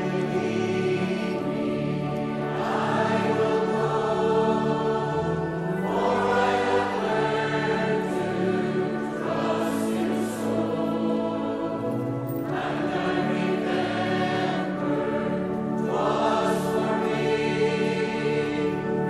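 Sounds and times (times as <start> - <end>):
choir singing a hymn: 0.0 - 19.0.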